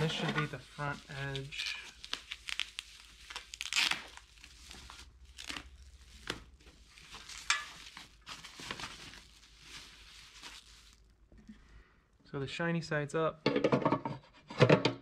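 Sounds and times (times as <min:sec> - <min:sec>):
plastic wrap crinkling: 0:00.0 - 0:11.5.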